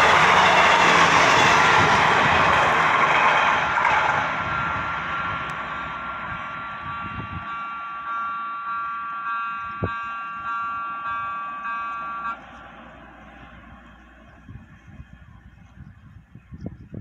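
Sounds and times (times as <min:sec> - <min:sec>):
steady high-pitched tones: 0:00.0 - 0:12.5
train pulling away: 0:00.0 - 0:15.2.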